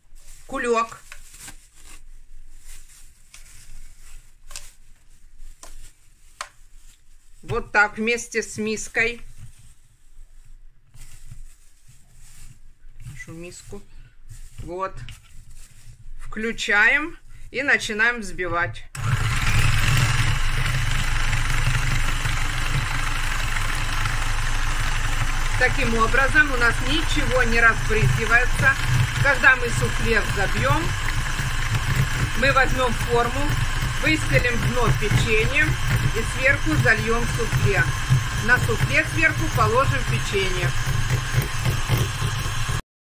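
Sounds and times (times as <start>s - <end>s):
plastic bag rustling: 0.0s - 16.4s, 22.3s - 42.7s
electric hand mixer running: 19.0s - 42.8s.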